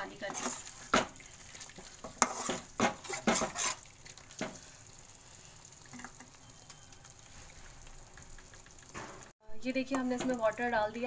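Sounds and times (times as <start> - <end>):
metal spatula scraping a pan: 0.0 - 1.2, 1.8 - 4.6
gravy sizzling: 0.0 - 11.0.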